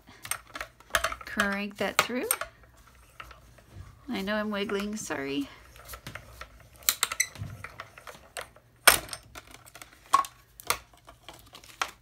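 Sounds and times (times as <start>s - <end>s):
plastic plates clacking: 0.1s - 3.4s.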